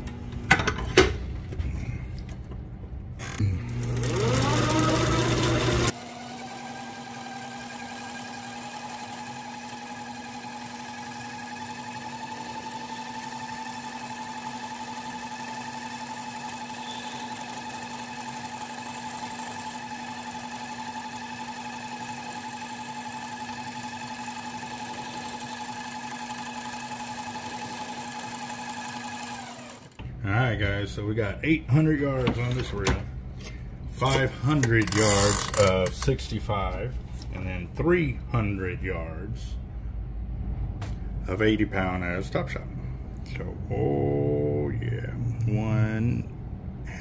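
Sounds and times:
line spooler motor whine: 0:03.2 - 0:30.0.

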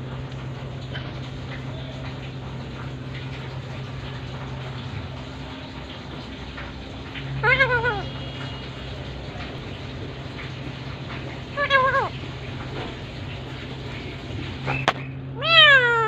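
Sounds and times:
parakeet call: 0:14.6 - 0:16.0.

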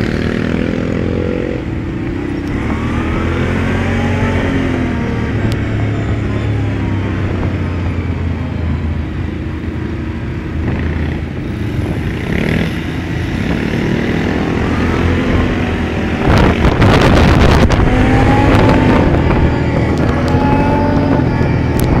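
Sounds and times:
quad bike engines: 0:00.0 - 0:22.0
wind buffeting microphone: 0:10.4 - 0:22.0.

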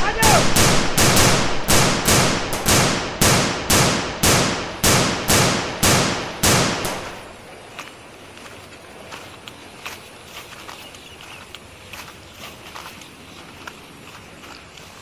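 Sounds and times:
gunshots with echoing tails: 0:00.0 - 0:07.3.

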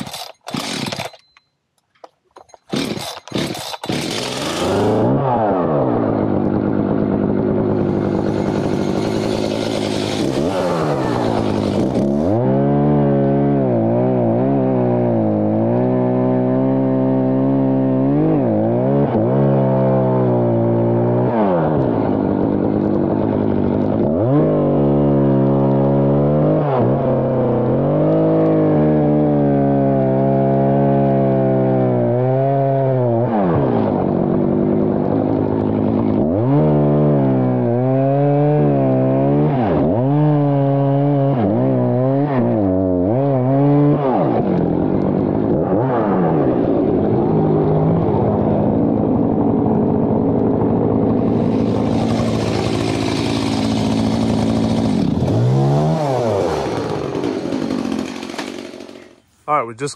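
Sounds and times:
chainsaw cutting wood: 0:00.0 - 0:05.2, 0:07.7 - 0:16.9, 0:51.2 - 0:59.3.

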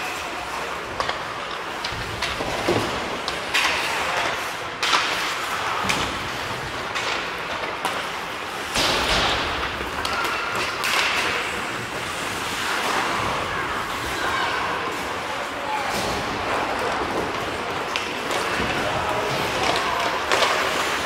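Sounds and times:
skate blades scraping on ice: 0:00.0 - 0:15.6
hockey sticks and puck knocking: 0:00.7 - 0:13.1, 0:15.9 - 0:21.0.

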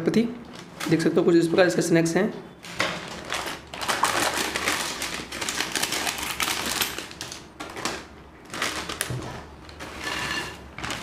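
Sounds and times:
plastic packet crackling: 0:02.8 - 0:10.0, 0:10.7 - 0:11.0.

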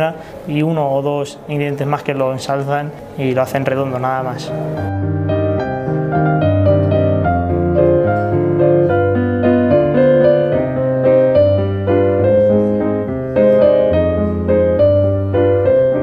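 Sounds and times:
piano music: 0:03.4 - 0:16.0.

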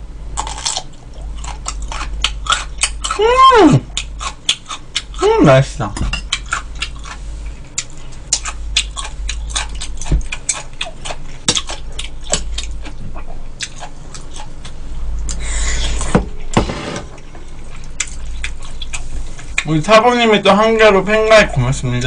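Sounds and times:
wet chewing: 0:00.4 - 0:03.2, 0:03.8 - 0:05.2, 0:06.2 - 0:16.0, 0:17.3 - 0:19.7.

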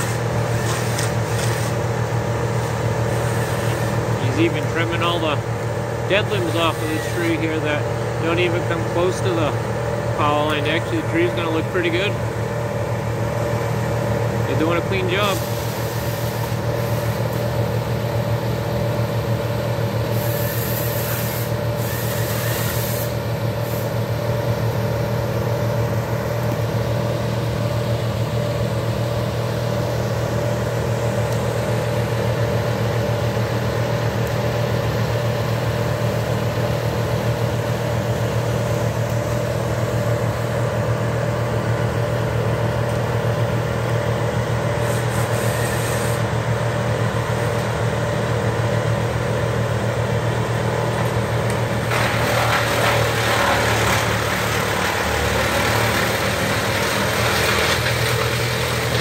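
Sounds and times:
machinery engine droning: 0:01.8 - 0:20.3.

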